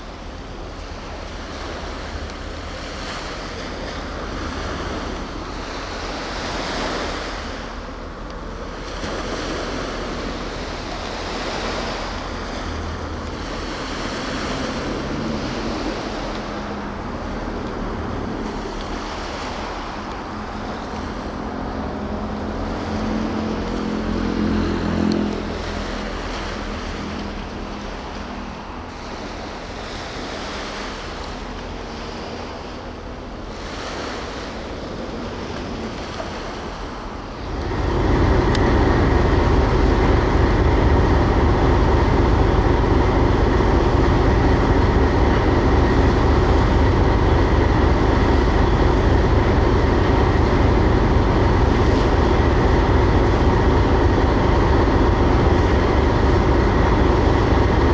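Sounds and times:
low engine hum: 0:00.0 - 0:57.9
water washing against shore: 0:00.0 - 0:57.9
wind buffeting microphone: 0:31.7 - 0:57.9.

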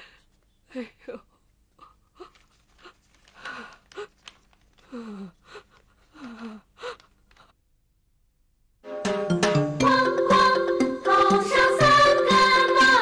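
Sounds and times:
old woman sobbing: 0:00.7 - 0:07.6.

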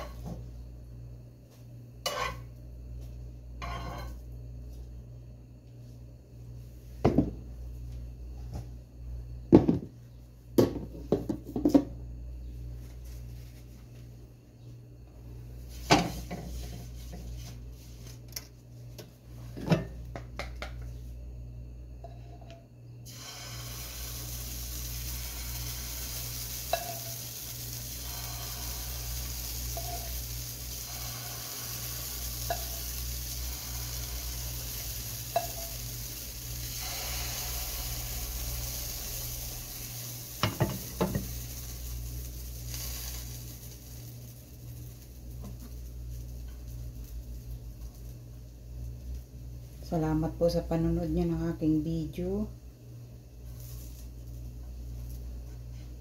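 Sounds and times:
steady low hum: 0:00.0 - 0:56.0
utensil scraping a frying pan: 0:02.0 - 0:02.5, 0:03.6 - 0:04.2
batter sizzling in hot oil: 0:23.0 - 0:50.0, 0:53.4 - 0:56.0
spoon tapping a pan: 0:26.7 - 0:27.1, 0:32.4 - 0:32.8, 0:35.3 - 0:35.8.

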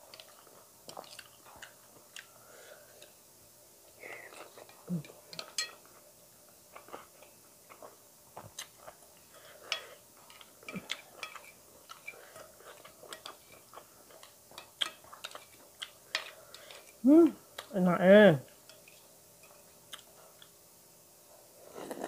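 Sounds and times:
chewing: 0:00.1 - 0:03.1, 0:06.7 - 0:17.0.

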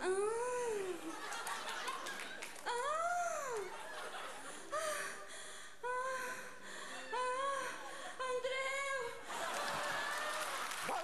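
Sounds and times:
woman moaning: 0:00.0 - 0:01.0
audience applause: 0:09.4 - 0:11.0.

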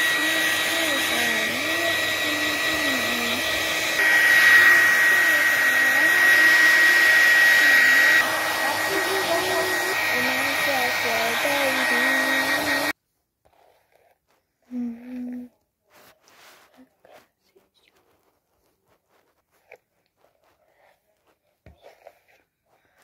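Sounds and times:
hair dryer blowing: 0:00.0 - 0:13.0.

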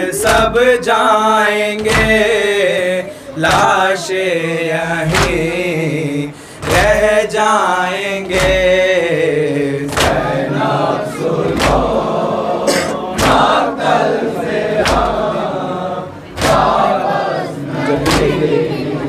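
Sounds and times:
men chanting in unison: 0:00.0 - 0:19.0
hands slapping chests: 0:01.8 - 0:02.3, 0:05.1 - 0:05.5, 0:08.2 - 0:08.8, 0:09.9 - 0:10.4, 0:11.5 - 0:12.1, 0:13.2 - 0:13.6, 0:14.8 - 0:15.3, 0:16.4 - 0:16.9, 0:18.0 - 0:18.4.

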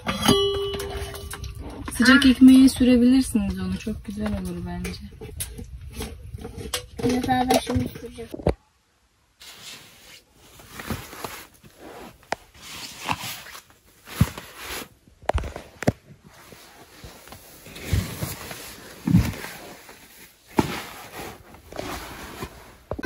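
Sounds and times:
fabric and bedding rustling: 0:09.4 - 0:23.0.

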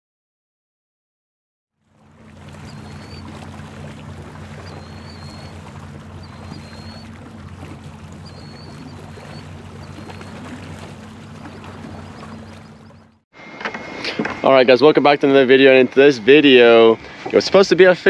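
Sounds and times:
water rushing past hull: 0:01.8 - 0:13.2
boat motor humming: 0:01.8 - 0:18.0
faint high chirps: 0:02.6 - 0:03.3, 0:04.6 - 0:07.2, 0:08.1 - 0:10.5.

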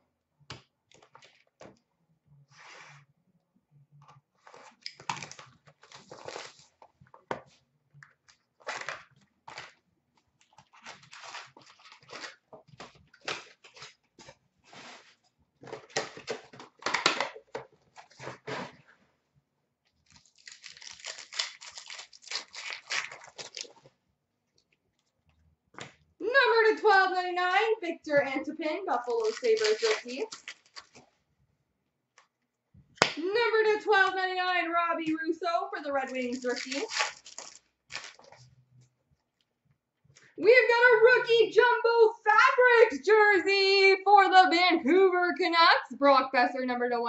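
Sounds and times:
wrappers tearing and crinkling: 0:04.4 - 0:06.8, 0:08.3 - 0:09.8, 0:10.4 - 0:14.1, 0:20.0 - 0:23.9, 0:28.9 - 0:31.0, 0:36.1 - 0:38.5
cards being handled: 0:29.1 - 0:31.0, 0:36.3 - 0:38.5.

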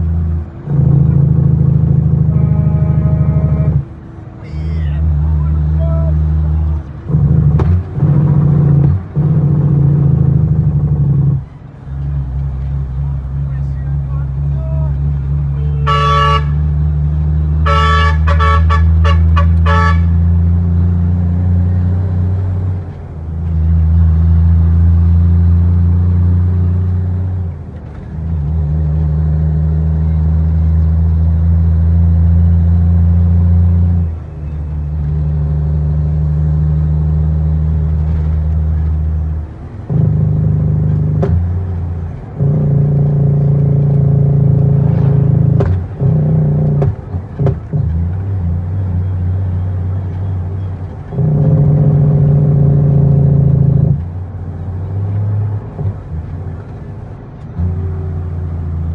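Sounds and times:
diesel engine droning: 0:00.0 - 0:58.9
horn short toots: 0:02.2 - 0:03.9, 0:14.6 - 0:16.8, 0:17.6 - 0:20.3.

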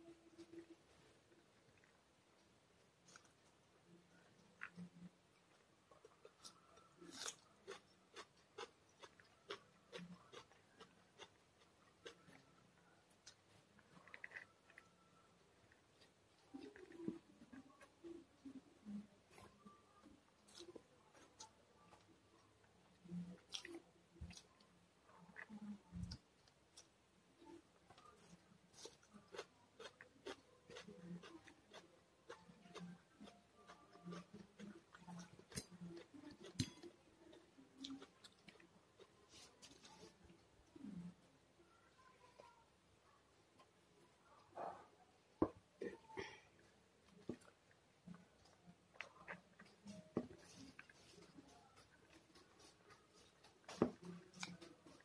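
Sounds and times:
fingers mixing rice on plate: 0:48.4 - 0:55.0.

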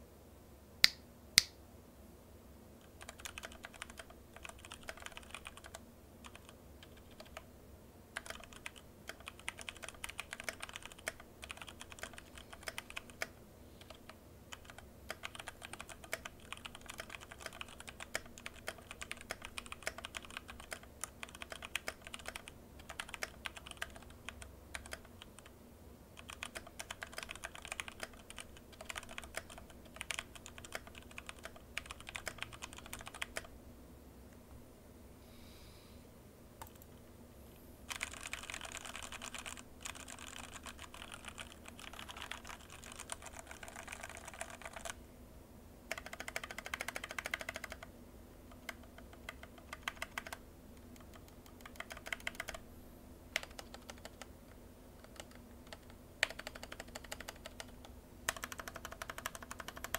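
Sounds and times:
mechanical keyboard typing: 0:02.8 - 0:07.4, 0:08.2 - 0:25.5, 0:26.2 - 0:33.5, 0:37.9 - 0:45.0, 0:45.9 - 0:47.9, 0:48.5 - 0:50.4, 0:51.0 - 0:52.6, 0:53.4 - 0:54.3, 0:55.0 - 0:59.9.

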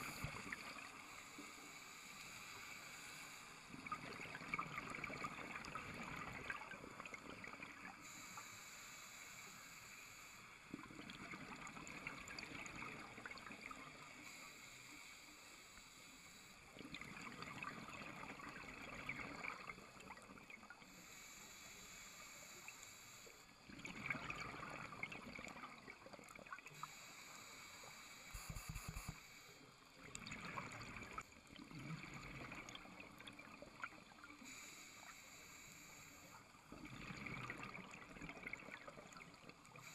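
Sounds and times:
regulator hiss on inhale: 0:00.0 - 0:03.9, 0:07.6 - 0:10.9, 0:13.7 - 0:16.8, 0:20.8 - 0:23.7, 0:26.7 - 0:29.9, 0:34.2 - 0:36.7.

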